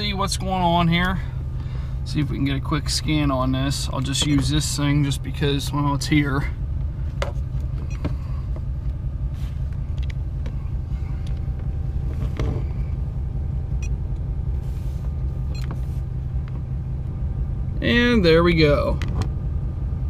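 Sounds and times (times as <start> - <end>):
diesel engine idling: 0.0 - 20.0.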